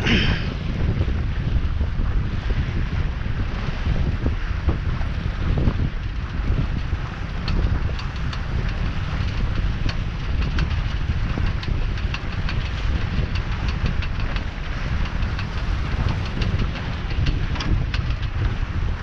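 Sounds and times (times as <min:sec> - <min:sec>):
water rushing along hull: 0:00.0 - 0:19.0
wind buffeting microphone: 0:00.0 - 0:19.0
light ticks and splashes: 0:03.9 - 0:19.0.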